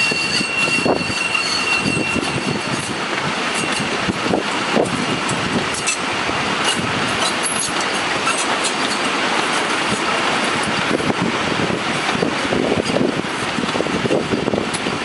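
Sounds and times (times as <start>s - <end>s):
faint wheel squeals: 0.0s - 2.8s
train wheels rumbling on rail: 0.0s - 15.0s
wheels clicking over track: 0.0s - 15.0s.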